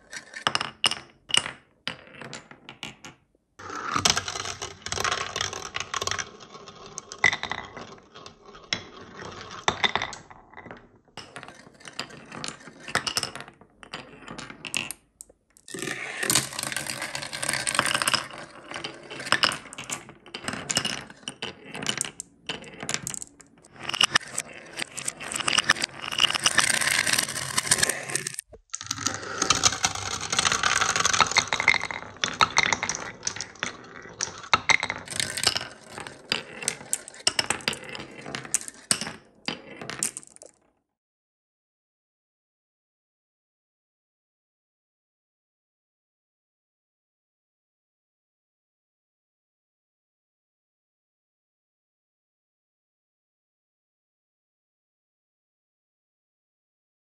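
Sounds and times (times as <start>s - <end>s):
marbles rolling down track: 3.6s - 10.3s, 14.5s - 40.6s
marbles clicking and clinking: 14.7s - 18.3s, 18.9s - 40.6s.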